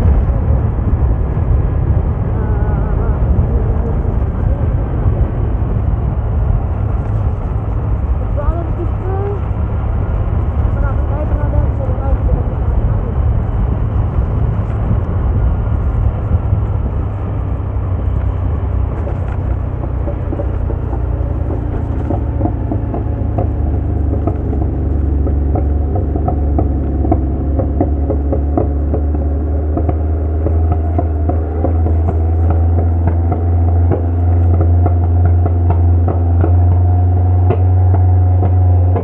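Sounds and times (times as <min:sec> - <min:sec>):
vehicle engine and road noise: 0:00.0 - 0:39.0.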